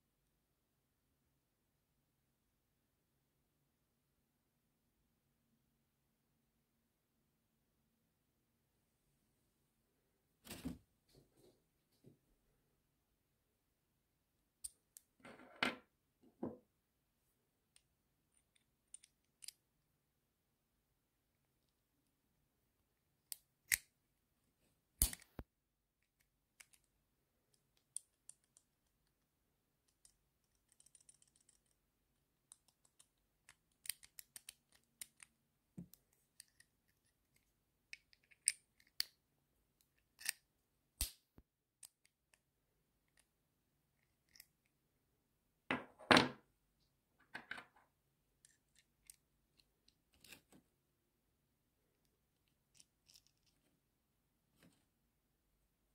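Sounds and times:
metallic clicks of bits: 18.4s - 19.6s, 29.8s - 31.8s, 32.5s - 36.7s.

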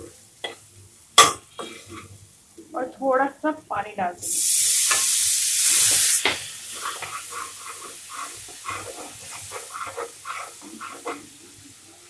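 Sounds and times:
water sputtering in hot wok: 4.2s - 12.0s.

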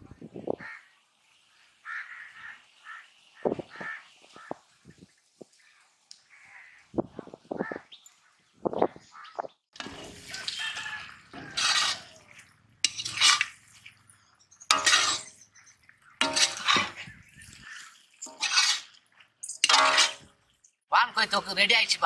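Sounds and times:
metal ladle scraping a pot: 9.8s - 14.1s, 14.7s - 15.5s, 16.2s - 20.4s.

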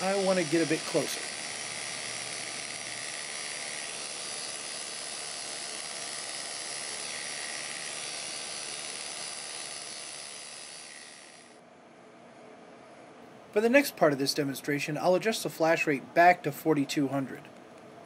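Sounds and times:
electric rotary tool whirring: 0.0s - 11.6s.

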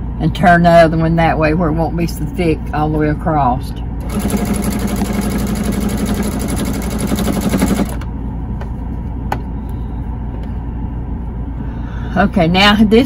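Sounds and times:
steady low hum: 0.0s - 13.0s
sewing machine stitching: 4.0s - 8.0s.

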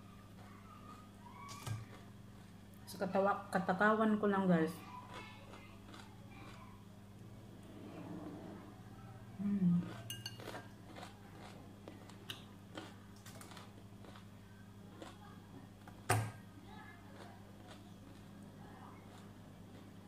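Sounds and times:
low hummed voice: 0.0s - 20.0s
fork clinking on glass bowl: 10.1s - 10.7s.

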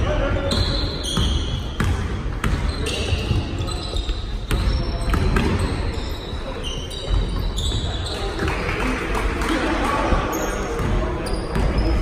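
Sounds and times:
sneakers squeaking: 0.0s - 8.8s, 10.1s - 12.0s
basketball bouncing on wooden floor: 1.2s - 2.7s.

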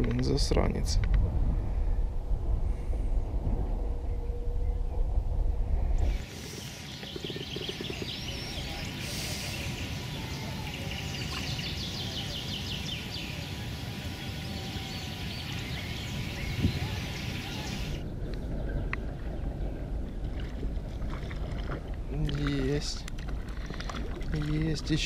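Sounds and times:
small birds chirping: 6.0s - 19.8s.

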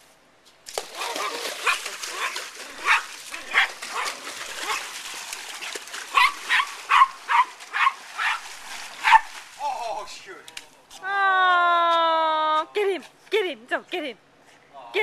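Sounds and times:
hands splashing water: 0.7s - 10.7s
small dog yapping: 1.0s - 4.9s, 6.1s - 8.4s, 9.0s - 9.3s.

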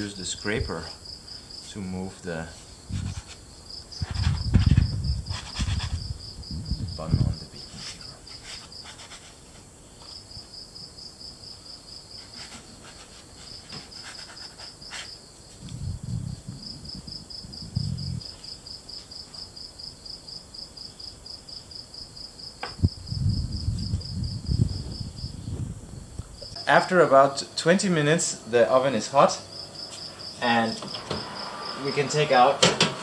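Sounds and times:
cricket chirping: 0.0s - 26.8s, 28.3s - 32.0s
low muffled bumps: 3.9s - 7.9s, 22.6s - 26.6s.

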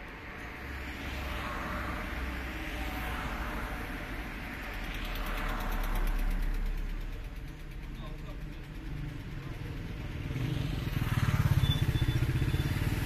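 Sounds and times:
road noise: 0.0s - 13.0s
vehicle engine rumble: 0.0s - 13.0s.

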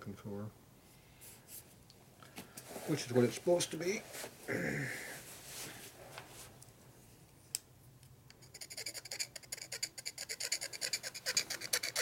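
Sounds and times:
hand tool scraping paint off metal: 8.5s - 12.0s.

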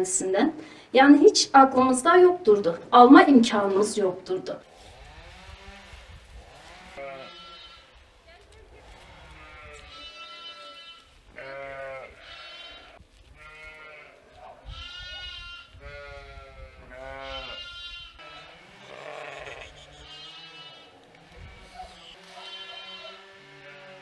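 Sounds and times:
sheep bleating: 6.6s - 8.0s, 8.8s - 24.0s.

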